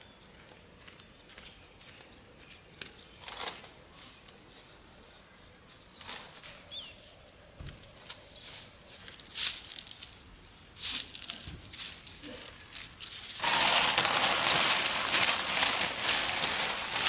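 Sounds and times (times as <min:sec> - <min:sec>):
dry greens rustling in basket: 0:08.0 - 0:17.0.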